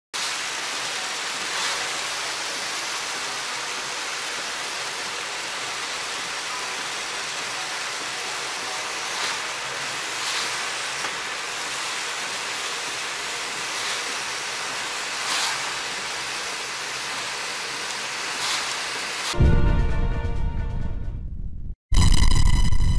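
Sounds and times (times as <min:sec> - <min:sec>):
tyres hissing on wet road: 0:00.2 - 0:19.4.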